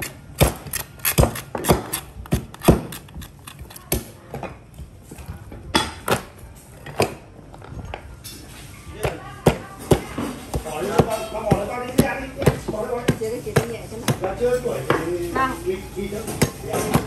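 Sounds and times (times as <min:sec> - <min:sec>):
cleaver chopping on wooden board: 0:00.0 - 0:03.3.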